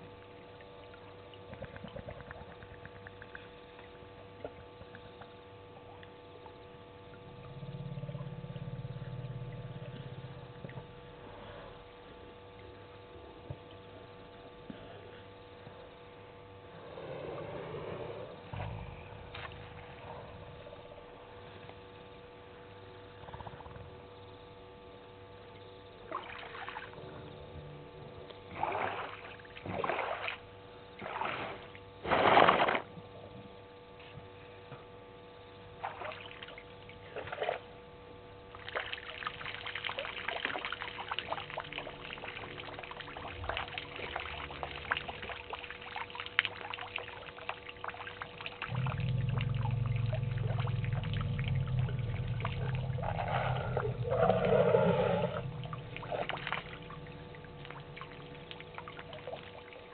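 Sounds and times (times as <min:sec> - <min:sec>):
elephant trunk splashing water: 0:28.5 - 0:30.4, 0:31.0 - 0:32.9, 0:38.6 - 0:59.9
water trickling and dripping: 0:38.5 - 0:54.6, 0:55.3 - 0:59.9
water gushing: 0:38.6 - 0:59.9.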